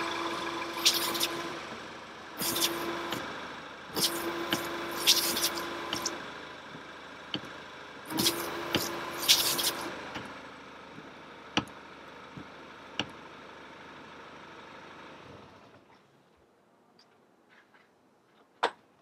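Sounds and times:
washer pump whine: 0.0s - 11.7s
car running hum: 0.0s - 16.4s
windscreen washer spraying: 0.8s - 1.4s, 2.4s - 2.9s, 4.0s - 6.2s, 8.1s - 9.9s
wipers sweeping: 0.8s - 1.4s, 2.4s - 3.2s, 4.0s - 6.2s, 8.1s - 9.9s.

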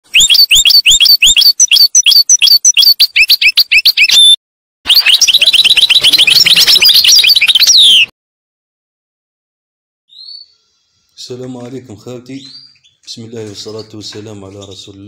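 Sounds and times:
songbird chirping: 0.1s - 8.1s, 10.1s - 15.0s.

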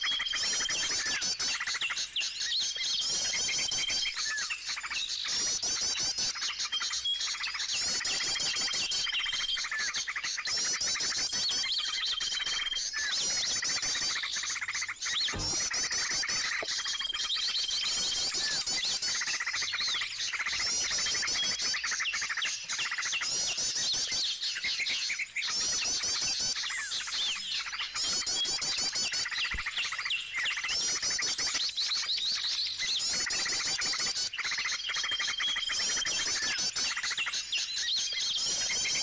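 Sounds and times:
songbirds chirping and chattering: 0.0s - 39.0s
high whistled bird note: 15.1s - 18.6s.

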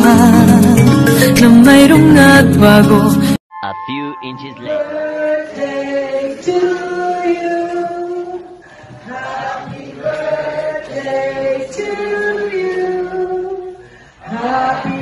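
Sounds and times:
woman singing a ballad: 0.0s - 3.4s.

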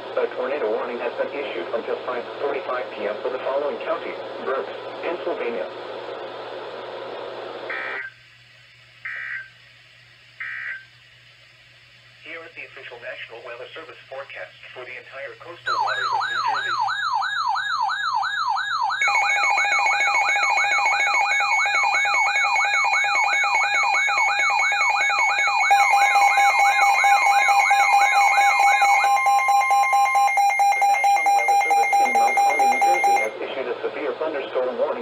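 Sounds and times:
steady alarm tones: 9.0s - 9.6s, 10.4s - 10.9s, 15.7s - 33.4s
warbling siren tone: 15.7s - 33.3s.

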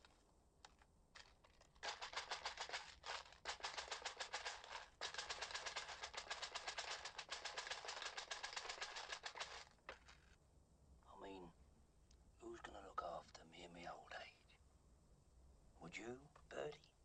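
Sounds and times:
coins and trinkets rattling: 1.2s - 10.4s.

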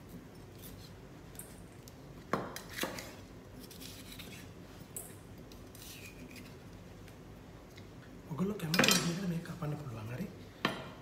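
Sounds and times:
knife tapping and scraping: 0.5s - 6.5s.

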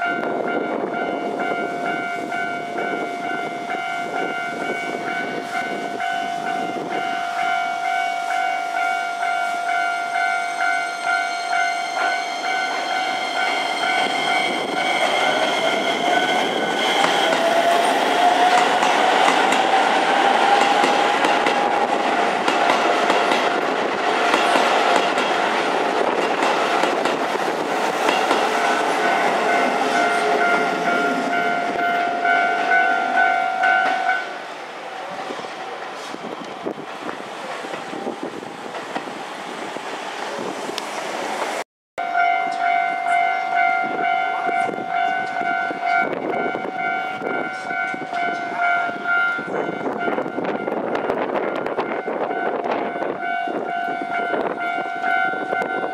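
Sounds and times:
level-crossing warning bell: 0.0s - 25.6s, 27.8s - 34.5s, 42.0s - 55.9s
train wheels rumbling: 0.0s - 41.6s.

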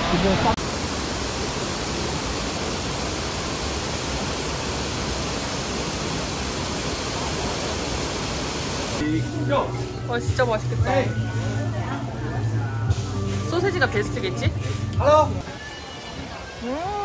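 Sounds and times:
waterfall rushing: 0.0s - 12.1s.

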